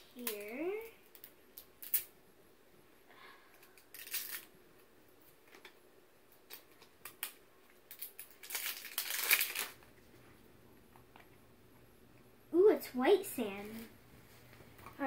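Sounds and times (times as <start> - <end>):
plastic packaging crinkling: 3.7 - 4.5, 6.5 - 9.8.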